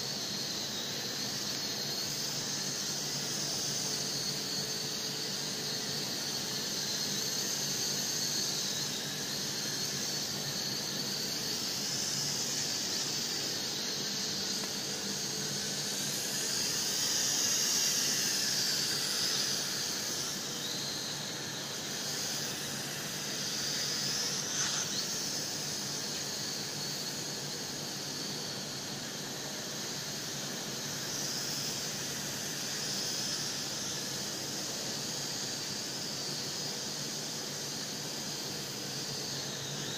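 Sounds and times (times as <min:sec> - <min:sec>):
toy drone motors whining: 0:00.1 - 0:28.4, 0:38.9 - 0:39.9.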